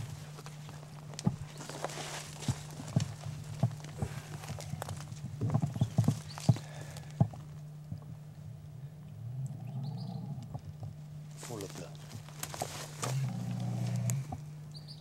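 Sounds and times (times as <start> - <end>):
branches scraping clothing: 0.0 - 7.2, 11.3 - 14.4
footsteps crunching through scrub: 0.0 - 7.6, 11.3 - 14.4
twigs snapping: 0.3 - 7.7, 11.3 - 14.5.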